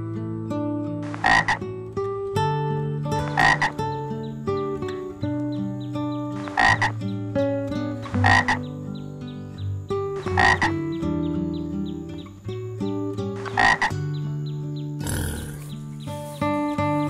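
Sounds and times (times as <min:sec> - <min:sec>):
plucked background music: 0:00.6 - 0:17.0
frog croaking: 0:01.0 - 0:01.7, 0:03.2 - 0:04.0, 0:06.4 - 0:07.1, 0:07.9 - 0:09.0, 0:09.8 - 0:11.0, 0:13.3 - 0:14.2, 0:14.8 - 0:16.6.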